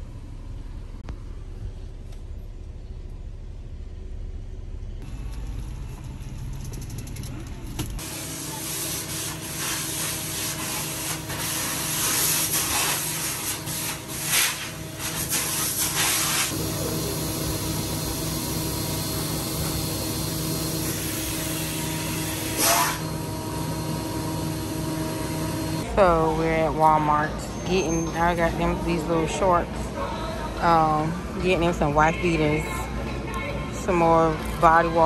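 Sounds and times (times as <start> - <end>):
vacuum cleaner motor hum: 16.5 - 25.9
vacuum nozzle rasping over a rug: 19.3 - 23.1.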